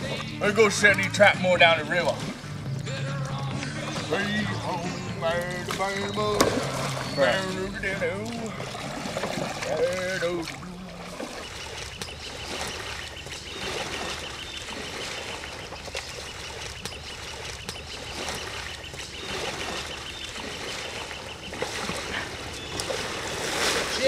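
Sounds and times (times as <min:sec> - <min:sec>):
paddles splashing in water: 0:00.0 - 0:24.0.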